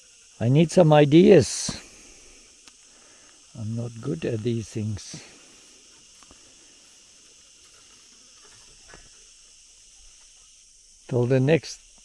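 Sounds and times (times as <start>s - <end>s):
high-pitched insect chorus: 0.0s - 12.0s
faint clicks: 2.6s - 3.4s.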